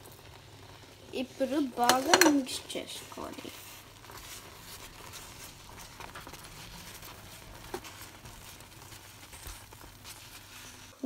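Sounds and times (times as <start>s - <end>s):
spoon scraping pan: 1.8s - 2.7s.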